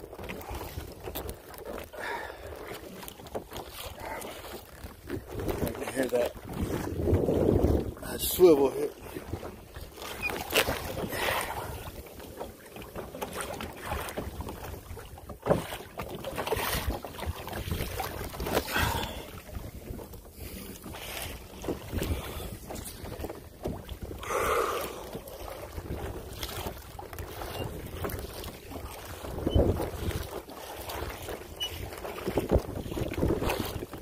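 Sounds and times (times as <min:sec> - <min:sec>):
water splashing against kayak: 0:00.0 - 0:34.0
wind buffeting microphone: 0:05.0 - 0:12.1, 0:16.4 - 0:34.0.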